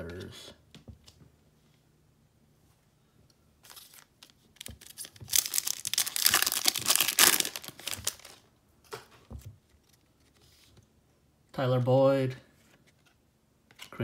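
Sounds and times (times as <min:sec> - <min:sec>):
foil wrapper tearing and crinkling: 0:04.8 - 0:08.4.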